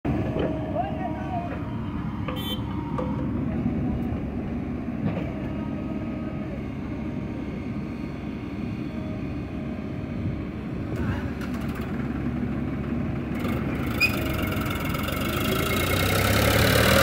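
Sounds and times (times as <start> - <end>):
diesel engines idling: 0.1 - 17.0
high-pitched squeak: 13.8 - 14.4.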